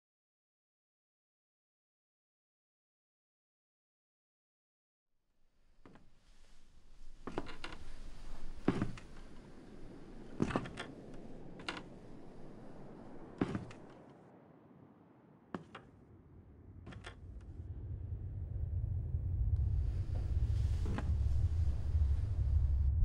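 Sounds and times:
low rumble: 16.0s - 23.0s.

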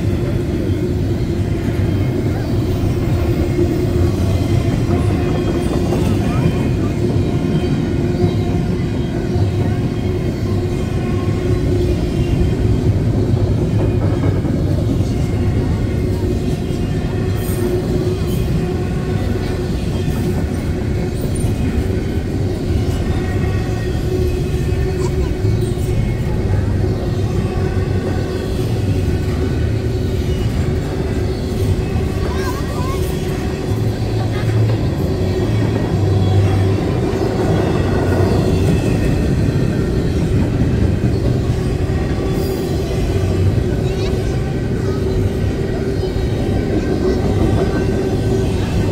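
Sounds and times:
freight train wheels rumbling on rail: 0.0s - 48.9s.

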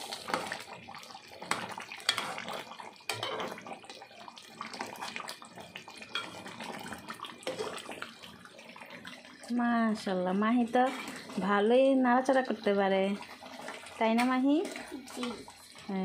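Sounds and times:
sauce bubbling: 0.0s - 16.0s
metal spatula scraping pot: 1.4s - 3.6s, 6.1s - 8.2s, 10.5s - 16.0s.

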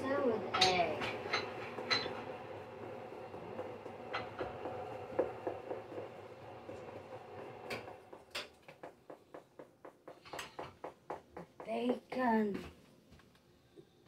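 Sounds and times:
utensils and plates clinking: 0.5s - 2.3s.

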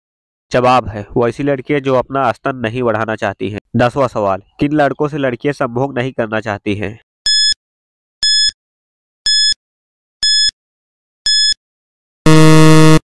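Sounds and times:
short high-pitched beeps: 11.3s - 11.6s, 12.3s - 13.0s.

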